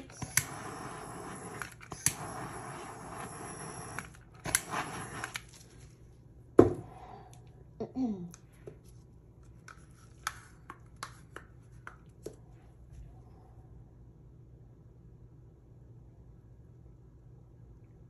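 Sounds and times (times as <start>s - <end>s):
handheld torch hissing: 0.0s - 5.6s
tool knocking on table: 6.6s - 6.8s.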